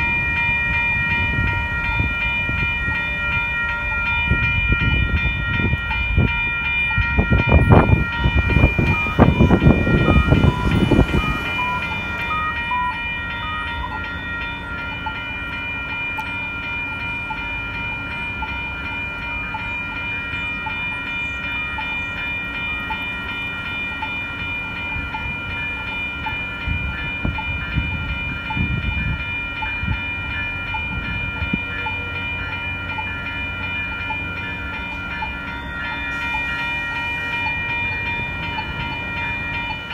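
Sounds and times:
railroad crossing bells ringing: 0.0s - 39.9s
passing vehicle low rumble: 7.3s - 14.3s.

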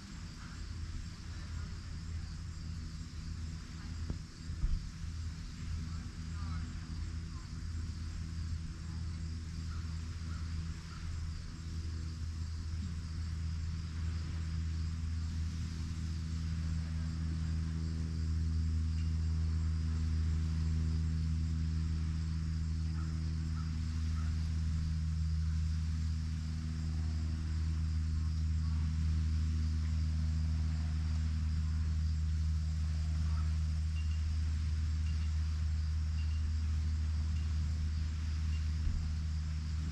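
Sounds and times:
insects trilling: 0.0s - 39.9s
low motor hum: 0.0s - 39.9s.

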